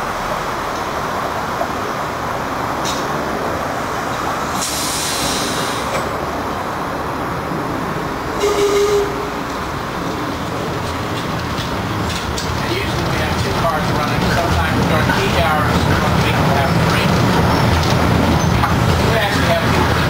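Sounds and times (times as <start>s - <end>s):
street traffic noise: 0.0s - 20.0s
streetcar rolling: 0.0s - 20.0s
air brake hisses: 4.6s - 6.0s.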